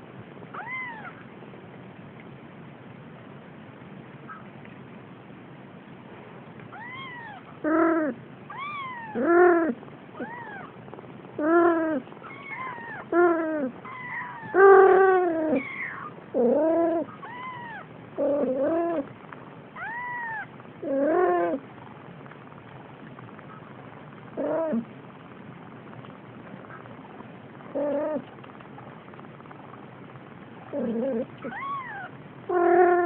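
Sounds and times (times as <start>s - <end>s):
kittens meowing: 0.6s - 1.2s, 6.7s - 10.8s, 11.4s - 19.1s, 19.8s - 21.6s, 30.7s - 33.0s.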